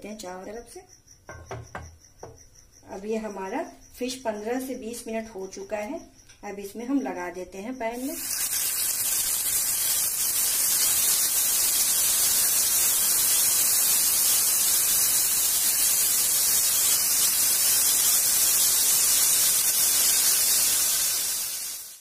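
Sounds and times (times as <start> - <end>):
fish frying in hot oil: 8.0 - 22.0.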